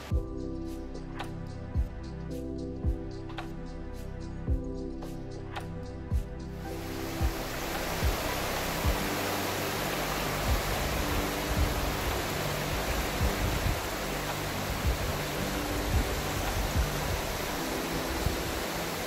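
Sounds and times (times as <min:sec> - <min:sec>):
river rushing over stones: 0:06.6 - 0:19.0
dull low thumps: 0:07.2 - 0:09.1, 0:10.4 - 0:13.9, 0:14.8 - 0:17.4.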